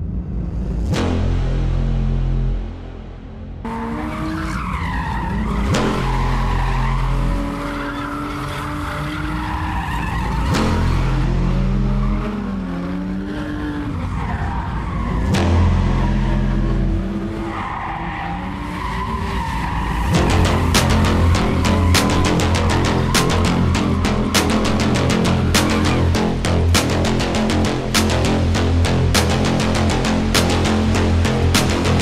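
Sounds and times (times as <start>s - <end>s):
car engines revving: 0.0s - 32.0s.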